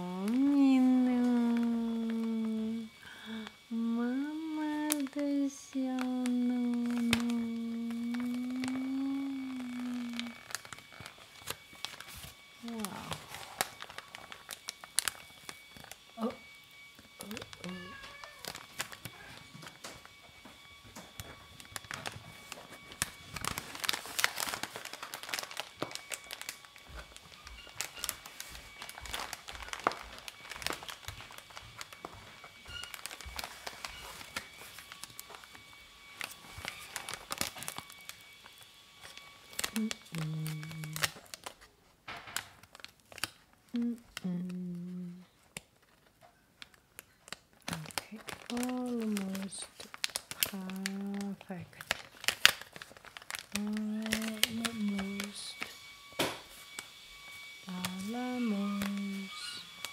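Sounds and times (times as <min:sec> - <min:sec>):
steady low hum: 0:00.0 - 0:17.8
paper bag crinkling: 0:00.0 - 0:59.9.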